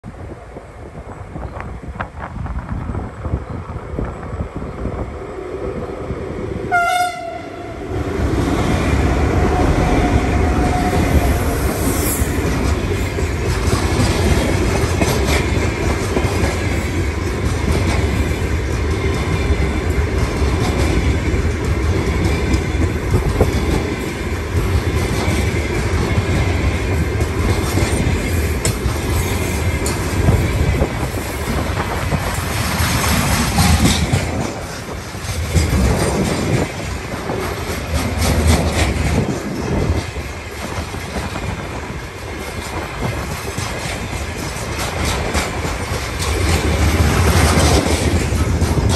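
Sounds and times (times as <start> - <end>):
train rumbling past: 0.0 - 48.9
locomotive horn blast: 6.7 - 7.9
train wheels clacking: 8.6 - 48.9.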